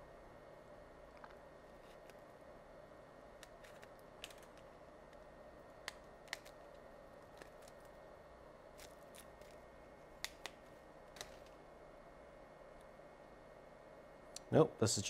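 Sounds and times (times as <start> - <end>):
faint room hum: 0.0 - 15.0
small plastic parts clicking: 3.4 - 4.7.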